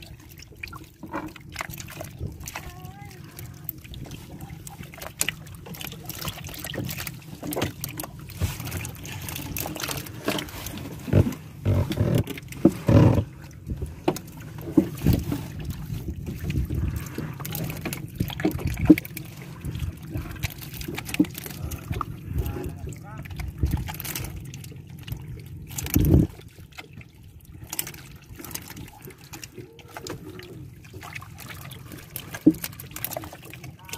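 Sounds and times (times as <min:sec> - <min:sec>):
knocks and thumps on boat hull: 0:10.2 - 0:15.4.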